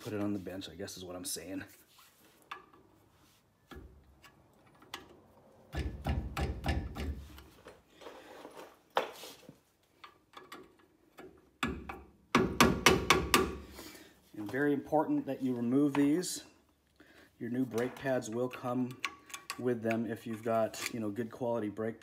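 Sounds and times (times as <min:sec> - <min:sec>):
metal clicks and knocks: 0:03.7 - 0:07.5, 0:10.0 - 0:13.5, 0:17.7 - 0:21.0.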